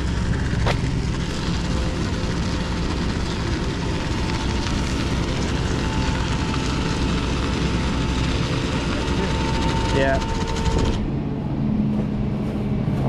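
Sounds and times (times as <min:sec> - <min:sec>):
winch whining: 0:00.0 - 0:11.3
tow truck engine droning: 0:00.0 - 0:13.0.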